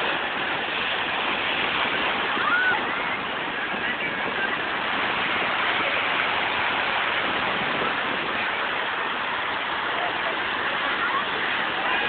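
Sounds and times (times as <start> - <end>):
surf breaking against sea wall: 0.0 - 12.0.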